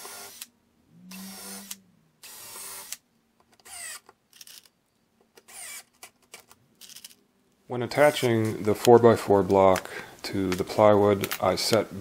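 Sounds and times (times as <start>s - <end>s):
cordless drill boring into wood: 0.0s - 0.5s, 1.1s - 3.0s, 3.6s - 4.0s, 5.5s - 5.9s.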